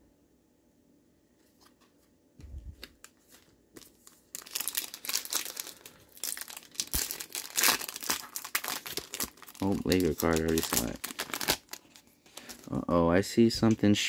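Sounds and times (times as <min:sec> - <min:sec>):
foil wrapper crinkling: 0:02.8 - 0:12.8.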